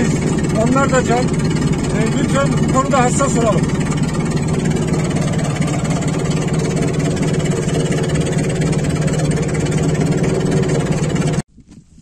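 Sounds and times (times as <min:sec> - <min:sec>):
vehicle engine humming while driving: 0:00.0 - 0:11.5.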